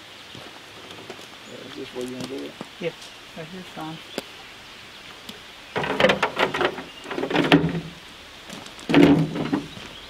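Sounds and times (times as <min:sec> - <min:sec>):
footsteps crunching on gravel: 0:00.3 - 0:03.2, 0:05.0 - 0:10.0.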